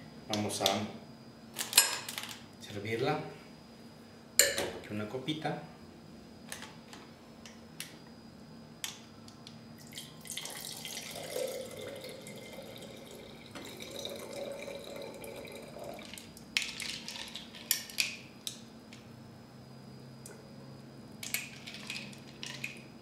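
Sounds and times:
liquid pouring into glass: 9.8 - 17.4.

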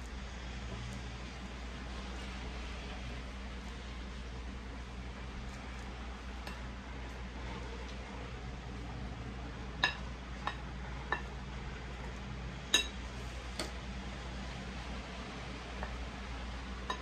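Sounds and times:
steady low hum: 0.0 - 17.0
glass bowl clinking: 9.8 - 11.3, 12.7 - 13.0.

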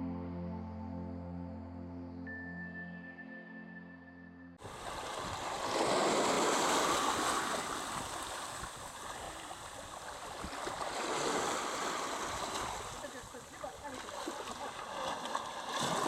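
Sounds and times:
sea water rushing: 4.6 - 16.0.

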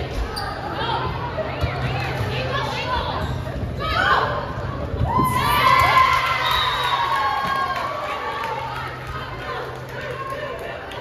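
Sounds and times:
players and spectators cheering: 5.0 - 11.0.

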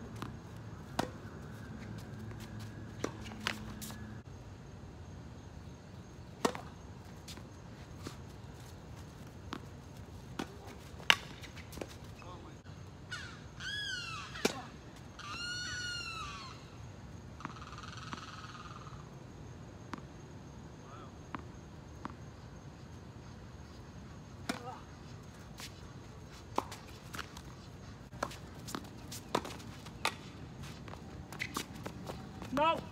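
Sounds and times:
tennis balls struck by racquets: 0.0 - 4.2, 6.4 - 7.5, 9.2 - 12.0, 24.4 - 24.8, 26.5 - 32.9
high squeaky calls: 13.1 - 14.5, 15.1 - 16.8.

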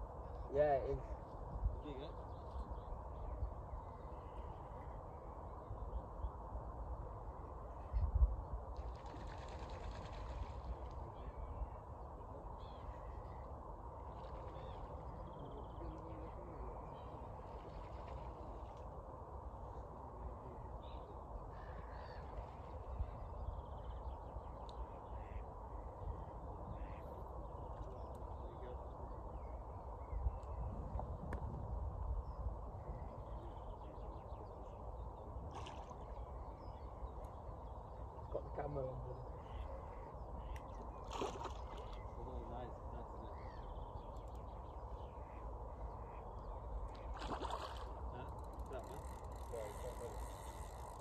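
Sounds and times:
wind on microphone: 5.4 - 11.6, 28.3 - 36.2
birds calling: 8.8 - 19.0, 19.6 - 31.2, 32.1 - 51.0.

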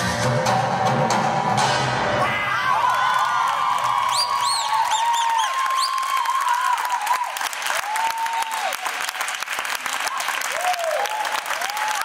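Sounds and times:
audience clapping: 2.7 - 12.0.

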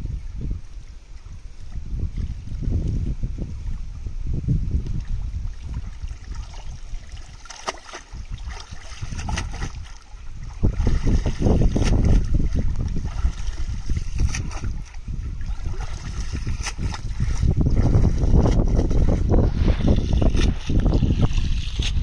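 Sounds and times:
water pouring off a net: 6.0 - 10.0.

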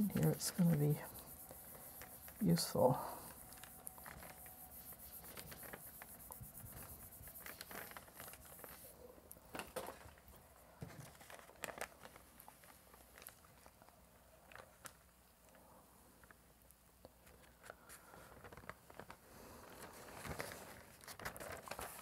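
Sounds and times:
spoon rubbing on paper: 0.0 - 8.9
paper rustling and crinkling: 0.0 - 15.1, 17.2 - 22.0.

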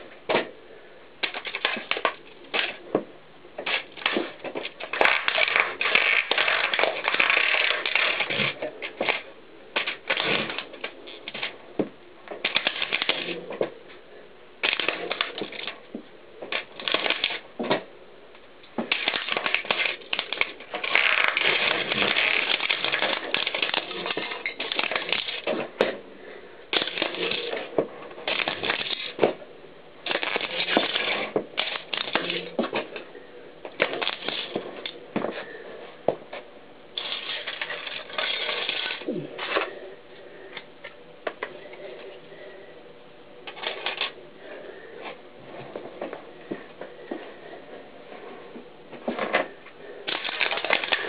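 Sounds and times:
plastic crunching under bike tyre: 1.2 - 13.8, 14.6 - 17.9, 18.7 - 26.0, 26.7 - 29.4, 30.0 - 33.0, 33.7 - 35.5, 36.3 - 39.7, 49.0 - 51.0.

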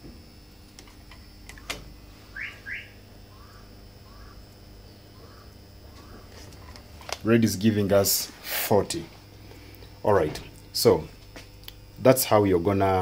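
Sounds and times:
low steady hum: 0.0 - 13.0
short rising chirps: 2.2 - 3.0.

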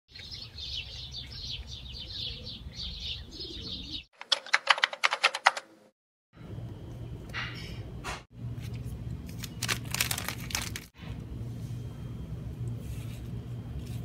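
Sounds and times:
small birds chirping: 0.1 - 4.1
sharp clicks: 4.2 - 5.7
low outdoor rumble: 6.4 - 14.0.

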